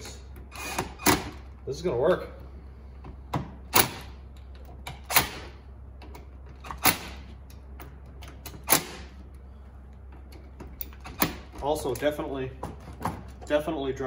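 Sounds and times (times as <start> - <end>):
steady low hum: 0.0 - 14.0
impact driver driving screws: 0.5 - 1.4.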